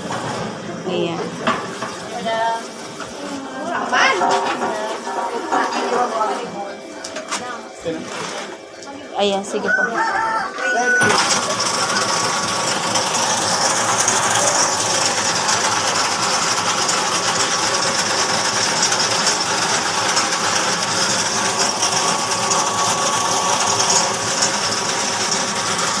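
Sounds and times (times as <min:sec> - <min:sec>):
ice cream mixer whirring: 0:00.0 - 0:26.0
thin steady whine: 0:00.0 - 0:26.0.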